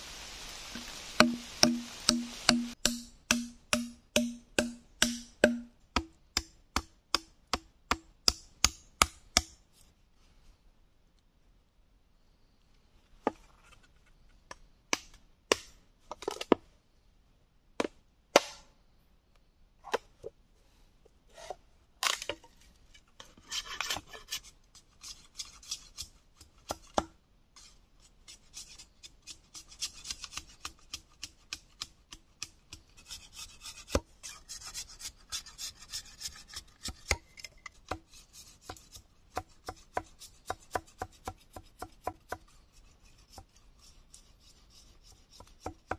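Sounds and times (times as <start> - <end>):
knife chopping bamboo: 1.2 - 9.6, 37.9 - 42.4
knife scraping bamboo: 21.3 - 27.0, 27.6 - 45.9.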